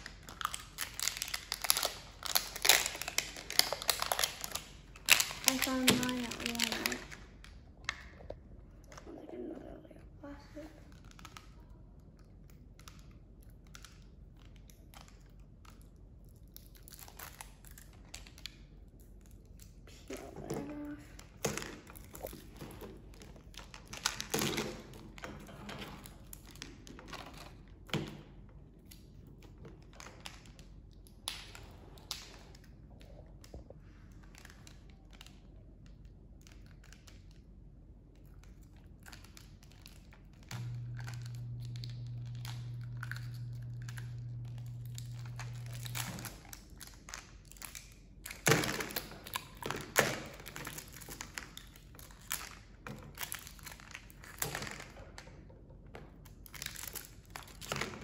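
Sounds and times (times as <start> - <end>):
plastic wrapper crinkling: 0.0 - 8.2, 10.8 - 25.3, 38.2 - 55.2, 56.3 - 58.0
plastic wrapper ripping: 0.0 - 8.2, 16.4 - 18.7, 38.4 - 55.0, 56.4 - 58.0.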